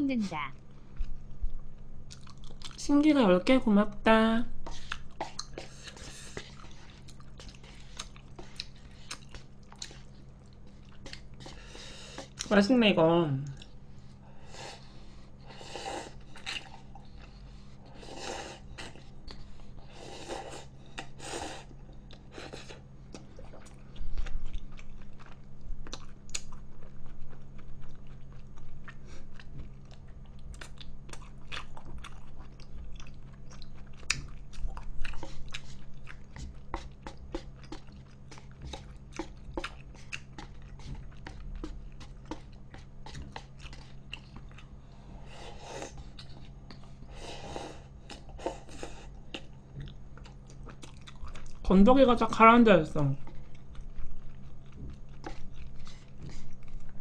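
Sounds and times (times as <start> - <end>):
wet chewing with lip smacks: 0.9 - 2.8, 4.6 - 12.5, 16.2 - 17.6, 21.9 - 44.8, 45.8 - 47.1, 47.9 - 51.7, 53.2 - 57.0.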